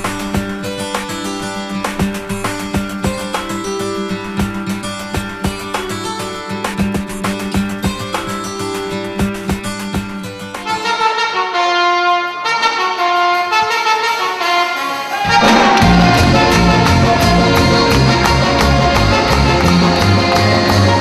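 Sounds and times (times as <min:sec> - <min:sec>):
trumpet melody: 0:10.6 - 0:21.0
live band playing: 0:14.9 - 0:21.0.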